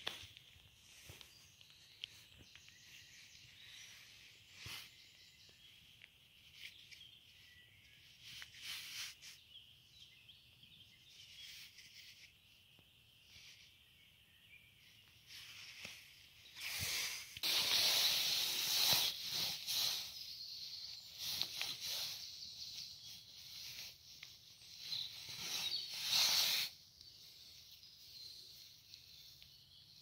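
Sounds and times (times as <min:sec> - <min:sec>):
hands scratching through soil: 0:00.0 - 0:05.7, 0:06.3 - 0:09.6, 0:15.3 - 0:29.6.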